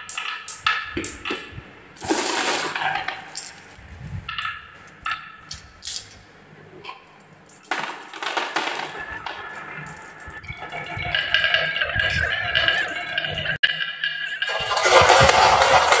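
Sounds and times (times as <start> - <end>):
marbles rolling down wooden track: 0.0 - 3.6, 7.7 - 16.0.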